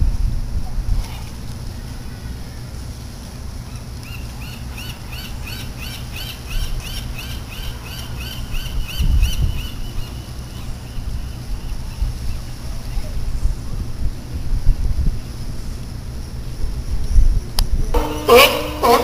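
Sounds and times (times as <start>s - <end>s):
wind noise on microphone: 0.0s - 2.8s, 5.4s - 19.0s
bird calling short high notes: 18.0s - 19.0s.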